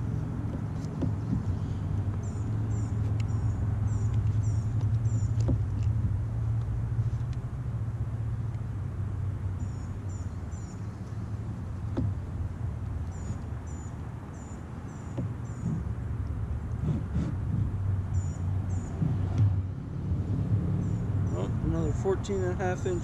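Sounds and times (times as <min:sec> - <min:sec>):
low steady rumble: 0:00.0 - 0:23.0
small bird chirping: 0:02.2 - 0:05.5, 0:09.6 - 0:11.2, 0:13.1 - 0:15.8, 0:18.1 - 0:19.0.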